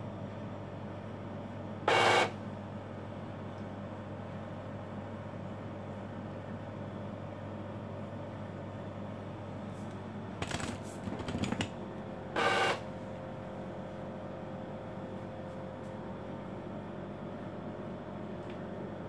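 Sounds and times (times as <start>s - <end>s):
printer beep: 1.9s - 2.4s, 12.3s - 12.9s
printer clicking and rattling: 10.4s - 11.8s.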